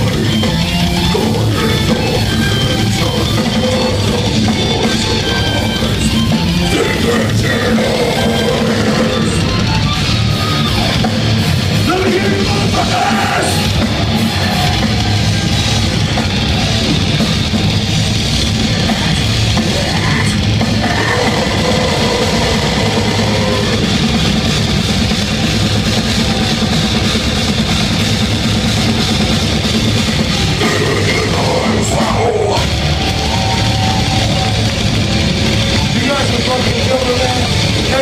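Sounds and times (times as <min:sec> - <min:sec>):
metal band playing live: 0:00.0 - 0:38.0
growled vocals: 0:01.0 - 0:09.5, 0:18.8 - 0:23.8, 0:30.6 - 0:32.8.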